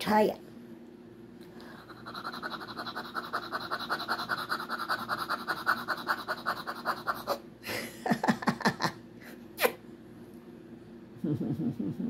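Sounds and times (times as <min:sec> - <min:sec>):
small dog panting: 0:01.8 - 0:07.4.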